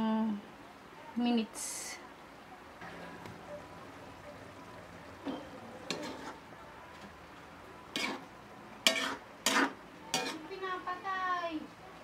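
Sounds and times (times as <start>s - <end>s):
metal spoon clanking on wok: 5.2s - 6.4s, 7.9s - 8.2s, 8.8s - 10.4s.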